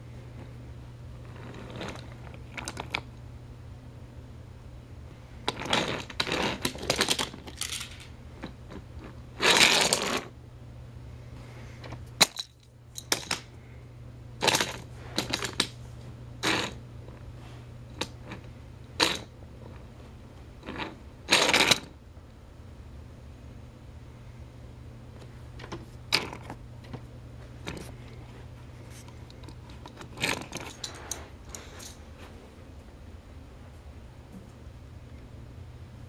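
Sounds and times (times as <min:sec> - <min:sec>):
steady low hum: 0:00.0 - 0:36.0
toy train handling clicks and scrapes: 0:05.5 - 0:10.3, 0:14.4 - 0:15.7, 0:16.4 - 0:16.8, 0:20.6 - 0:21.9, 0:28.8 - 0:32.0.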